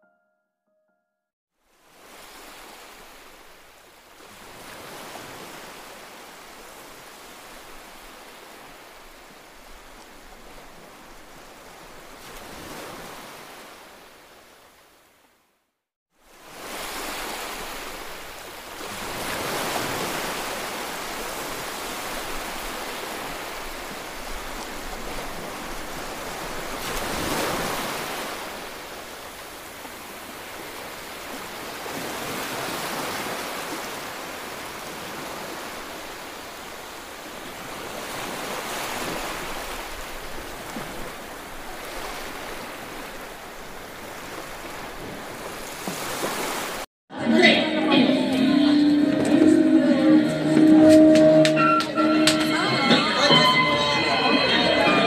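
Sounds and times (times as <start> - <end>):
ocean waves washing in: 1.6 - 15.3, 16.1 - 46.9.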